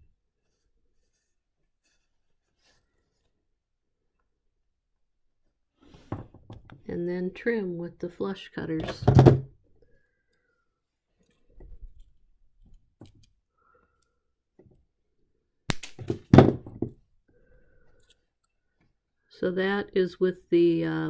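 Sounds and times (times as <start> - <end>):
thunk: 16.1 - 16.9.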